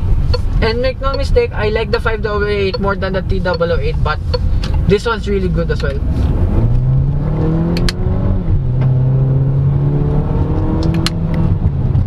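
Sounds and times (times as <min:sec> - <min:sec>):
car engine accelerating: 0:03.5 - 0:12.0.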